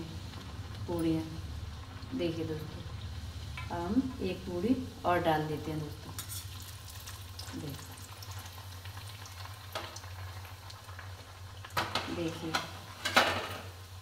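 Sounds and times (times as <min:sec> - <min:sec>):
bread frying sizzle: 0:00.0 - 0:14.0
metal spoon scraping a pan: 0:06.1 - 0:06.6, 0:11.8 - 0:13.7.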